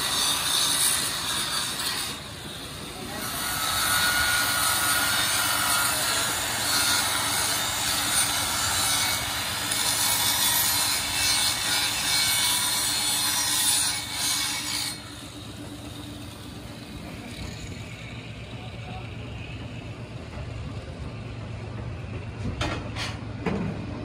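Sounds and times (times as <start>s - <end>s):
angle grinder grinding steel: 0.0s - 15.4s.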